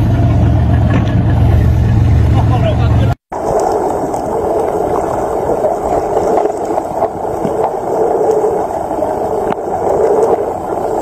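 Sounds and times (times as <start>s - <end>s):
underwater rushing water: 0.0s - 11.0s
faint clicks: 3.4s - 11.0s.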